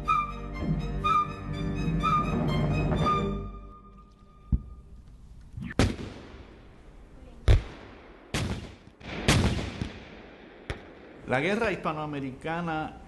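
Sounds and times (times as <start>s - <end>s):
gunshots echoing: 5.7s - 6.7s, 7.5s - 11.7s.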